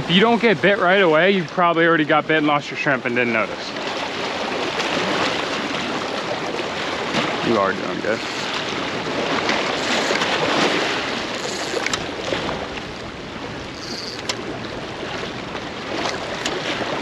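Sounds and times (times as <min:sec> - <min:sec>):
water splashing against rocks: 0:03.7 - 0:17.0
faint clicks: 0:11.3 - 0:12.1, 0:13.7 - 0:14.4.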